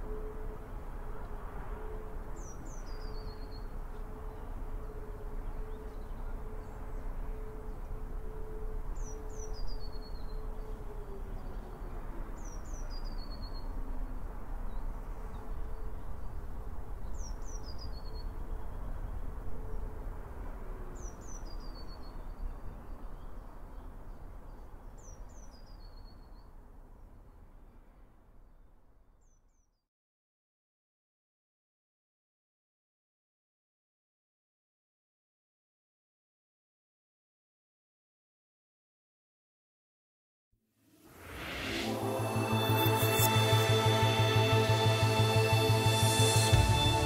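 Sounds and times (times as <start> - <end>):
distant air-raid sirens: 0.0 - 17.0, 18.3 - 21.2, 41.0 - 47.0.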